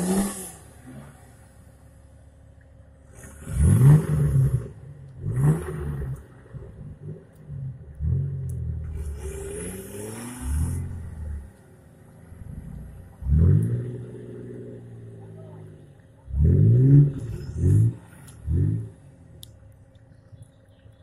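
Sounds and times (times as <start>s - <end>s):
off-road vehicle engine revving: 0.0s - 2.3s, 3.0s - 21.0s.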